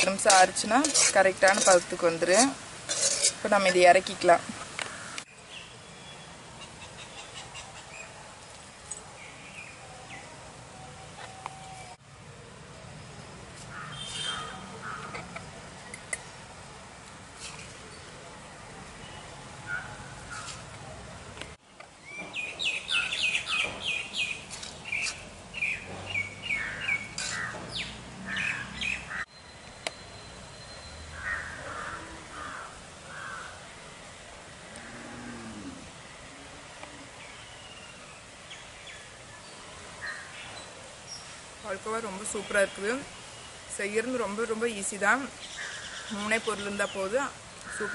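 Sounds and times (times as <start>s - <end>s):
small birds chirping: 22.0s - 33.5s.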